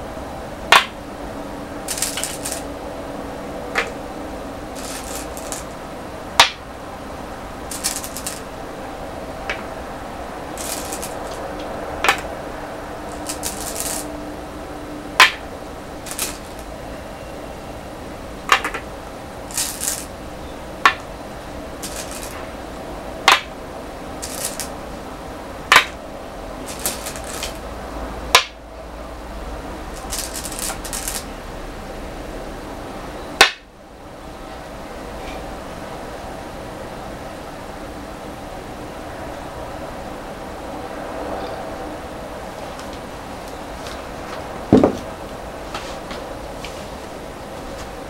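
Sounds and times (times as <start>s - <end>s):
stones clacking on wooden board: 1.9s - 2.6s, 4.8s - 5.7s, 7.7s - 8.4s, 10.6s - 11.4s, 12.0s - 12.3s, 13.1s - 14.1s, 16.1s - 16.7s, 18.5s - 18.9s, 19.5s - 20.1s, 21.8s - 22.4s, 24.2s - 24.7s, 25.7s - 26.0s, 26.7s - 27.6s, 30.0s - 31.3s, 44.7s - 45.0s
stones rattling: 4.8s - 5.7s, 13.1s - 14.1s, 16.1s - 16.7s, 19.5s - 20.1s, 21.8s - 22.4s, 24.2s - 24.7s, 30.0s - 31.2s.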